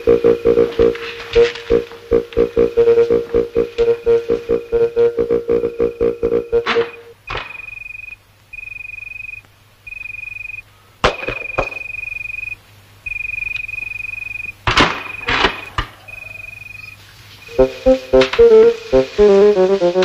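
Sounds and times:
crickets chirping: 3.4 - 10.7, 11.3 - 15.3, 16.0 - 18.9.

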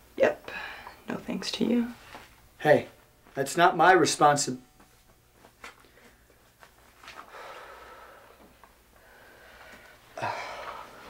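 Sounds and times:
person breathing: 7.2 - 11.0.

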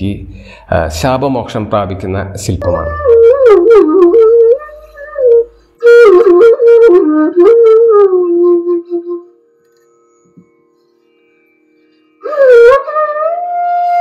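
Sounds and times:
flute melody: 2.6 - 9.4, 12.2 - 14.0.

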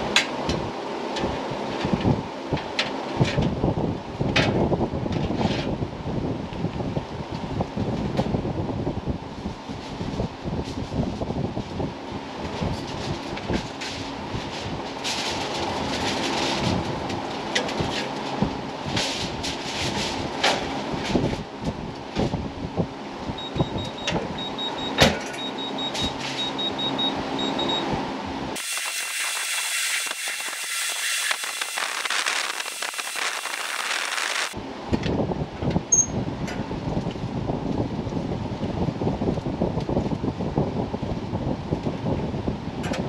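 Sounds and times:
thin high hiss: 28.6 - 34.6.

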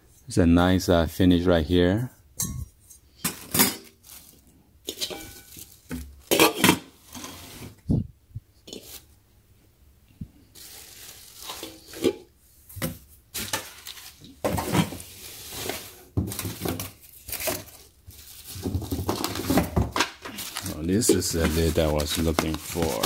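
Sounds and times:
cardboard and plastic wrap rustling: 3.2 - 7.9, 8.7 - 9.1, 10.5 - 23.0.

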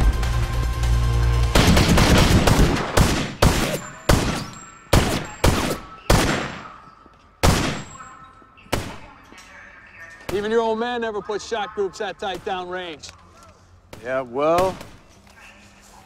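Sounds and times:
music: 0.0 - 2.2
pistol shots echoing indoors: 1.6 - 9.3.

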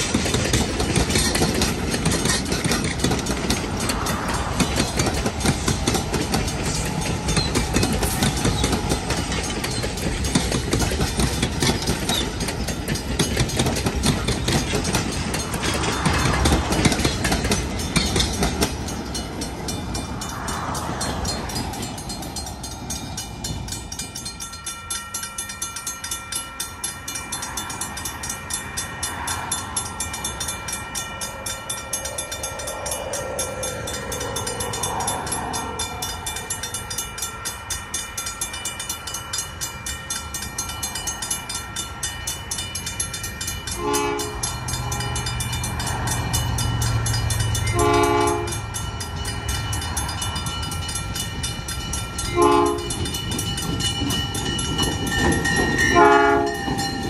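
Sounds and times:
train horn: 43.7 - 45.4, 47.6 - 48.8, 52.3 - 53.0, 55.8 - 56.9.

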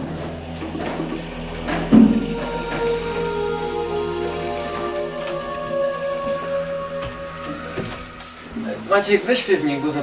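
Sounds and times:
soft sustained background music: 0.0 - 10.0.

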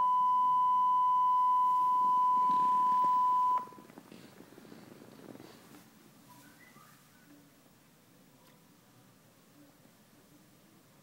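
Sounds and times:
test tone beep: 0.0 - 3.8
faint room noise: 0.0 - 11.0.

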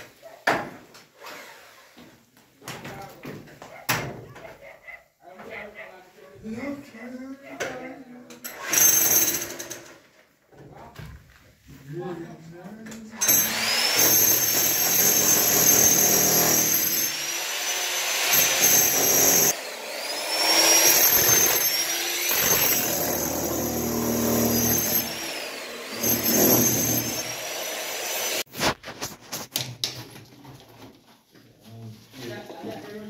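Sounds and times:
power tool whining against concrete: 13.2 - 28.5.

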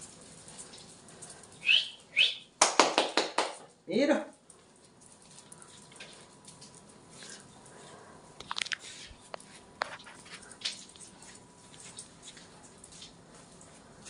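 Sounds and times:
puppy claws tapping on floor: 2.6 - 3.7.

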